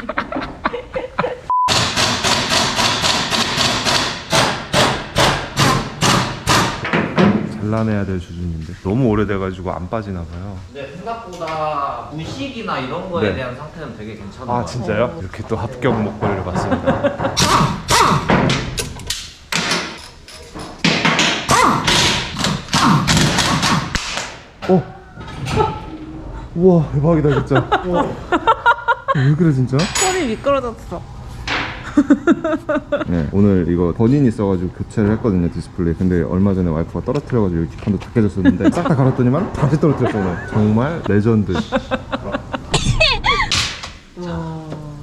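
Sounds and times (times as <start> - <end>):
air impact wrench rattling: 1.7 - 7.1
pneumatic impact wrench hammering: 1.7 - 7.4, 17.2 - 24.5.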